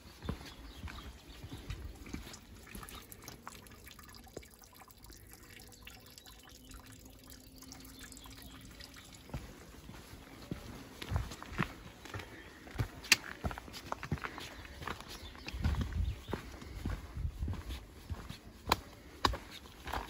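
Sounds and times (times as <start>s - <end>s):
footsteps on gravel: 0.0s - 2.9s, 9.3s - 20.0s
water trickling and dripping: 0.3s - 11.3s.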